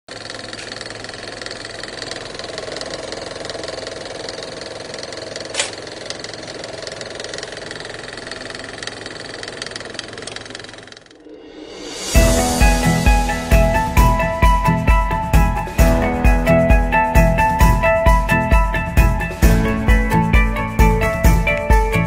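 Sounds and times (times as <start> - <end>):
mechanical whirring and rattling: 0.1 - 11.4
sharp click: 5.5 - 5.8
low hum: 10.6 - 15.3.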